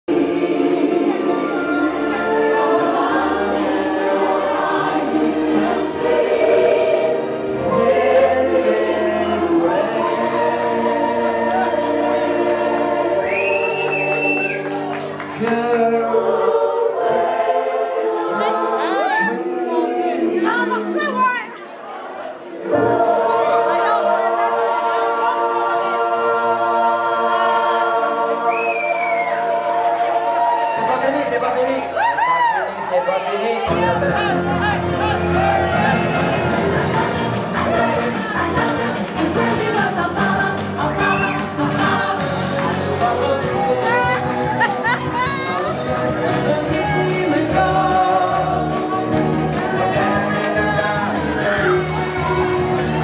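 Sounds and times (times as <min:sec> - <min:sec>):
choir singing gospel music: 0:00.0 - 0:53.0.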